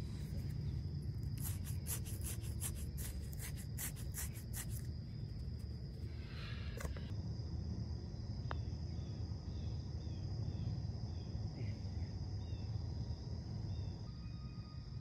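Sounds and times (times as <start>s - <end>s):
faint high chirps: 14.1s - 15.0s.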